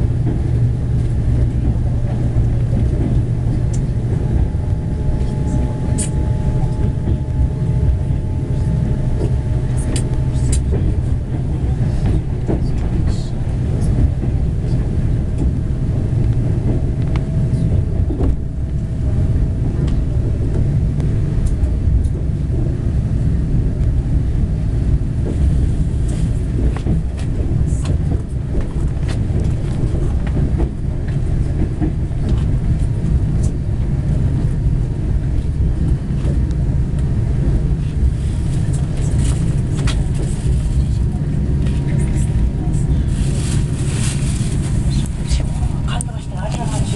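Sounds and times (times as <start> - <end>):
train rumbling on rails: 0.0 - 46.9
faint whine: 0.9 - 25.0.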